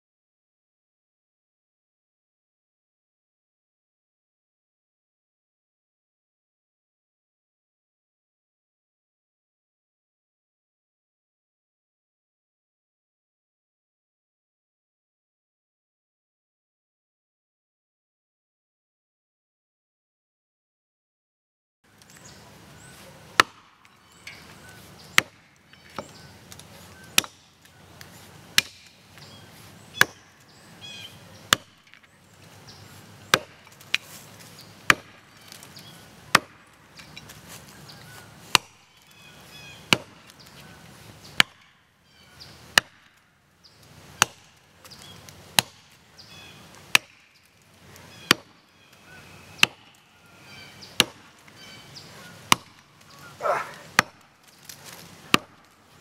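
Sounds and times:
axe chopping into tree trunk: 0:23.3 - 0:24.4, 0:25.0 - 0:27.5, 0:28.5 - 0:29.0, 0:30.0 - 0:30.4, 0:31.4 - 0:32.0, 0:33.2 - 0:34.1, 0:34.8 - 0:35.7, 0:36.3 - 0:37.3, 0:38.5 - 0:38.8, 0:39.8 - 0:40.3, 0:41.3 - 0:41.7, 0:42.7 - 0:43.2, 0:44.2 - 0:46.0, 0:46.9 - 0:47.3, 0:48.2 - 0:48.6, 0:49.6 - 0:49.9, 0:50.9 - 0:51.4, 0:52.4 - 0:55.7.

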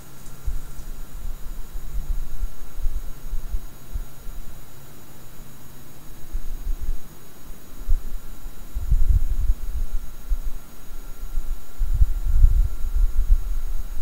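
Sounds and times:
wind buffeting microphone: 0:00.3 - 0:04.1, 0:07.8 - 0:14.0.

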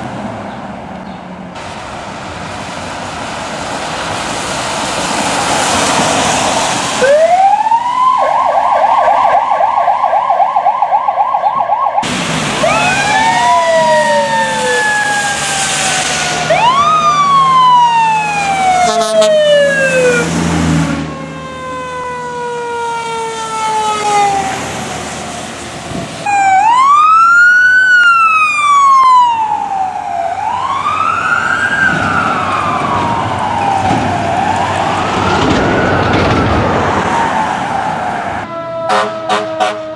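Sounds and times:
tyres hissing on wet pavement: 0:01.6 - 0:07.5, 0:12.0 - 0:19.1, 0:24.1 - 0:26.3
fire engine sirens wailing: 0:01.6 - 0:39.9.

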